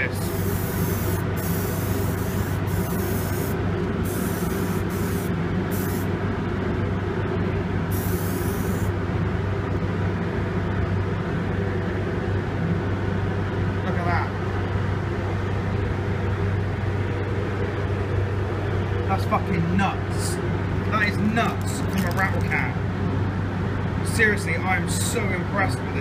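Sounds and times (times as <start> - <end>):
steady low hum: 0.0 - 26.0
spray can hissing: 0.3 - 6.1, 7.9 - 8.9.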